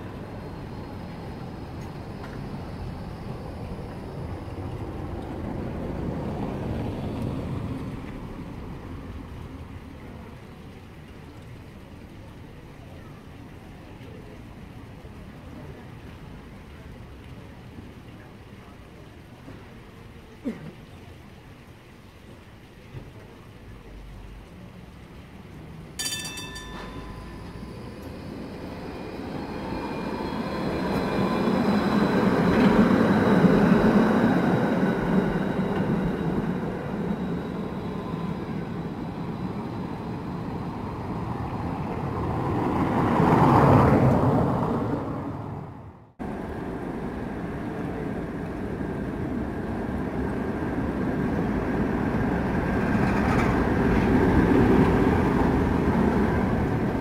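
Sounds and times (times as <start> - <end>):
tram wheels rumbling on rails: 0.0 - 20.6, 22.8 - 57.0
thin high whine: 26.0 - 41.3.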